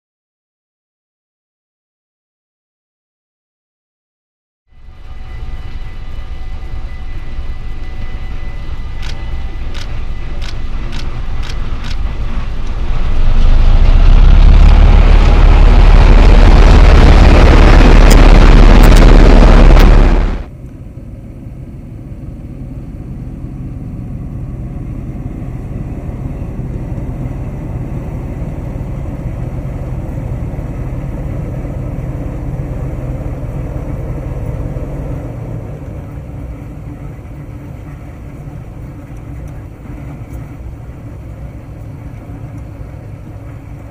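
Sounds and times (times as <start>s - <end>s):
loud low rushing noise: 4.8s - 20.5s
locomotive engine rumble: 4.8s - 43.9s.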